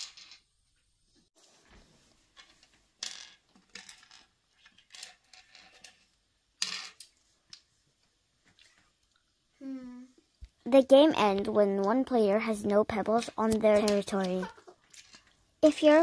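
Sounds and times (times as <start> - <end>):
game counters clicking in wooden cups: 2.4 - 6.0, 13.2 - 15.3.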